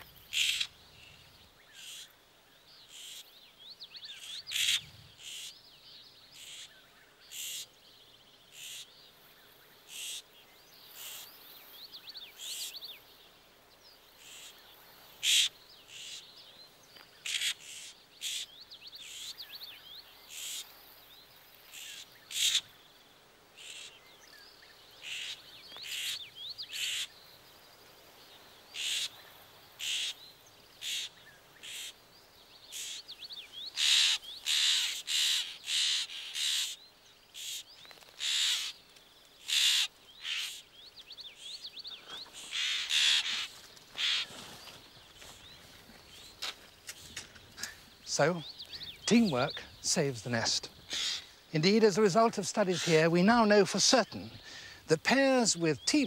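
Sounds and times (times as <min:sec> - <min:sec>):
jays harsh scolding alarm calls: 0:00.3 - 0:00.8, 0:01.8 - 0:02.1, 0:04.2 - 0:05.5, 0:06.4 - 0:06.7, 0:08.5 - 0:08.9, 0:09.9 - 0:10.2, 0:15.2 - 0:16.3, 0:17.2 - 0:19.4, 0:20.3 - 0:20.7, 0:21.7 - 0:22.7, 0:23.6 - 0:24.0, 0:25.0 - 0:27.1, 0:28.8 - 0:29.1, 0:29.8 - 0:30.2, 0:30.8 - 0:32.0, 0:32.7 - 0:36.8, 0:37.4 - 0:38.8, 0:39.4 - 0:40.7, 0:41.4 - 0:44.4, 0:47.6 - 0:56.0.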